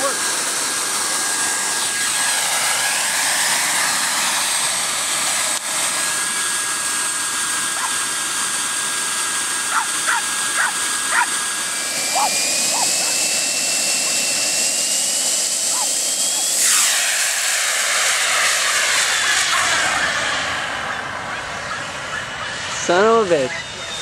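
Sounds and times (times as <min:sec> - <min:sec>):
jet turbine whining: 0:00.0 - 0:24.0
small dog barking: 0:07.8 - 0:08.0, 0:09.7 - 0:11.4, 0:12.1 - 0:13.3, 0:15.7 - 0:16.0, 0:21.2 - 0:22.6.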